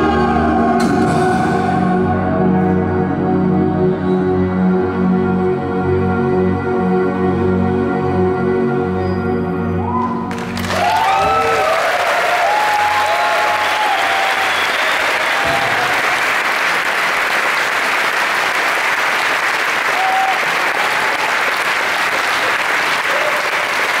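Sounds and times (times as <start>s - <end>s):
audience applauding and cheering: 9.8s - 24.0s
audience shouts: 9.9s - 16.3s, 19.8s - 21.5s, 23.0s - 23.8s.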